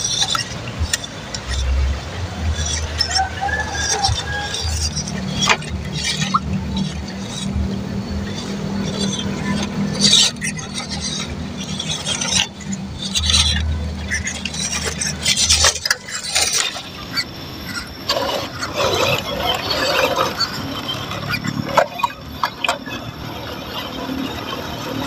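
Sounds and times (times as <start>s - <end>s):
water splashing and sloshing: 0.0s - 25.0s.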